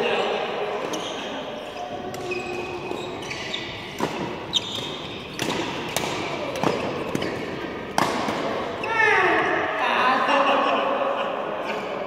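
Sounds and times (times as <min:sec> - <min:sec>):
court shoes squeaking: 0:00.1 - 0:09.5
rackets striking shuttlecock: 0:02.0 - 0:08.7.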